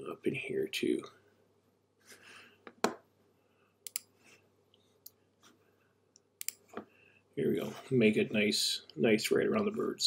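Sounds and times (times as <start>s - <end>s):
computer mouse clicks: 3.8s - 4.1s, 6.2s - 6.8s.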